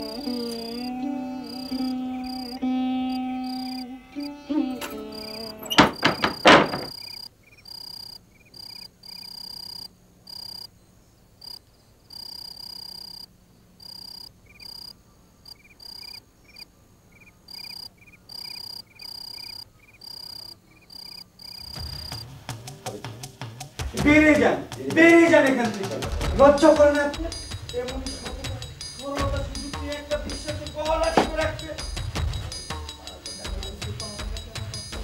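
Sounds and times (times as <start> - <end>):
crickets chirping: 0.0 - 24.0, 24.6 - 35.0
quicker chirping in short runs: 5.1 - 10.8, 11.4 - 22.3.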